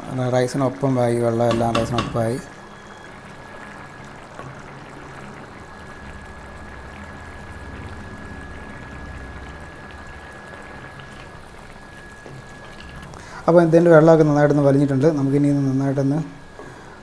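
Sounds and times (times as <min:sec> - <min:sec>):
rice boiling with small pops: 0:01.4 - 0:13.5.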